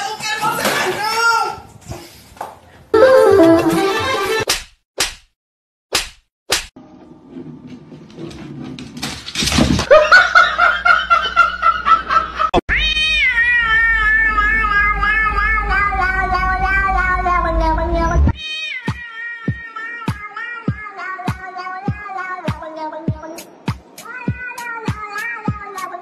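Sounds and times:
plucked notes: 0:03.0 - 0:04.3
background music: 0:03.0 - 0:04.4
cat yowling: 0:12.7 - 0:17.7, 0:18.3 - 0:22.4.

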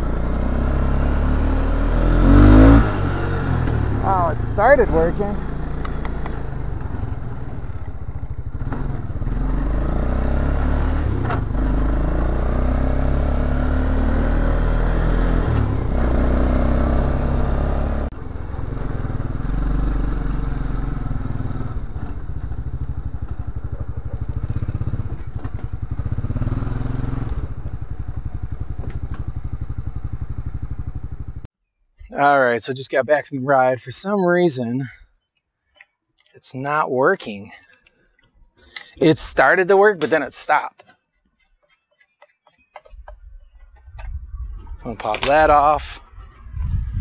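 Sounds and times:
quad bike engine revving: 0:00.0 - 0:31.5.

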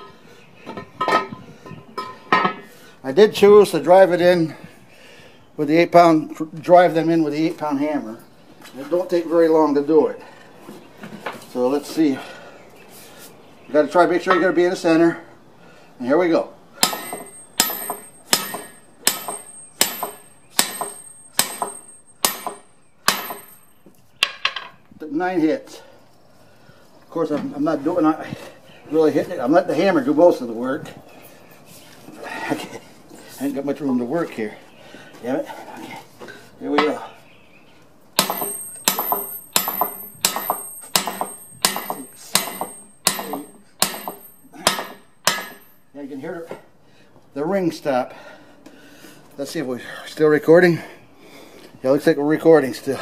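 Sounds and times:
sledgehammer blows on metal: 0:16.8 - 0:23.7, 0:38.2 - 0:45.7
hammer striking steel with ringing: 0:16.8 - 0:23.8, 0:38.2 - 0:45.8.

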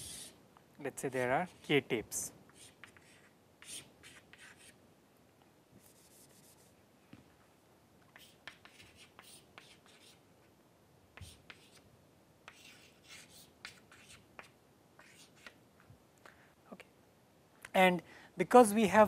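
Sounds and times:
chalk scratching on chalkboard: 0:00.0 - 0:00.4, 0:02.5 - 0:04.8, 0:05.8 - 0:06.8, 0:08.1 - 0:10.2, 0:11.2 - 0:11.8, 0:12.5 - 0:15.6
chalk tapping on chalkboard: 0:02.5 - 0:04.8, 0:08.1 - 0:10.2, 0:11.2 - 0:11.8.

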